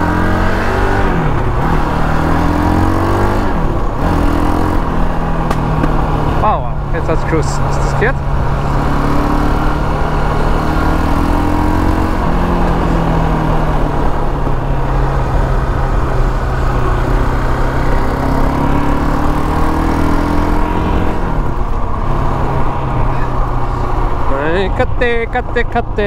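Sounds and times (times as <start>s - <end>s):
quad engine running: 0.0s - 26.0s.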